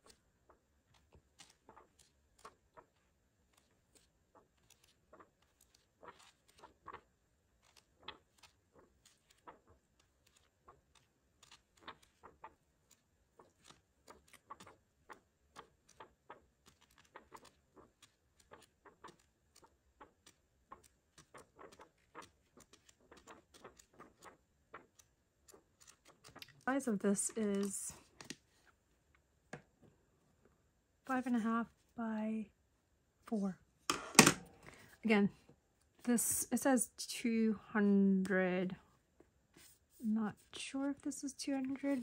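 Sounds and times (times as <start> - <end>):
craft paper rustling: 0.0 - 28.8, 39.5 - 42.0.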